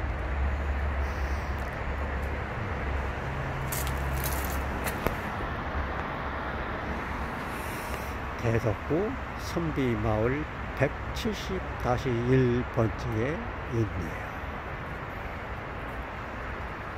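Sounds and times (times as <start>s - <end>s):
road traffic roar: 0.0s - 16.9s.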